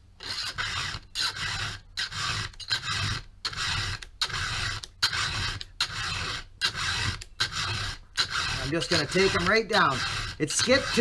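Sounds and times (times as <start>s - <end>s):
file rasping on chainsaw chain: 0.2s - 11.0s.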